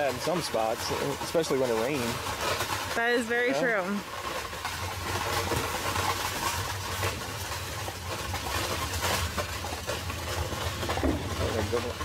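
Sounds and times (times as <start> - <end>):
carriage wheels rumbling: 0.0 - 12.0
knocks and clatters: 4.0 - 12.0.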